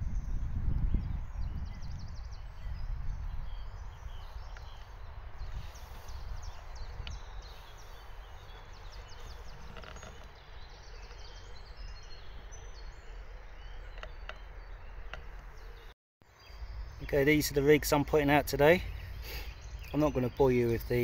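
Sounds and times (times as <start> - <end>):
wind rumble on microphone: 0.0 - 15.9
small birds chirping: 0.0 - 21.0.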